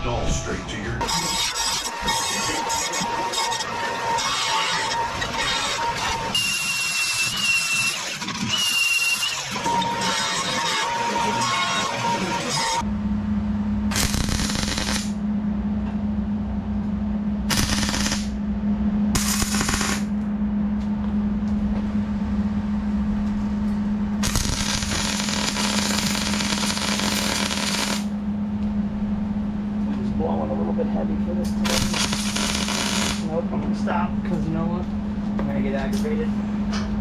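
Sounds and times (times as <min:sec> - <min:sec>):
steady low hum: 0:00.0 - 0:37.0
welder crackling on steel: 0:13.9 - 0:15.2, 0:17.5 - 0:18.3, 0:19.2 - 0:20.1, 0:24.2 - 0:28.1, 0:31.6 - 0:33.3.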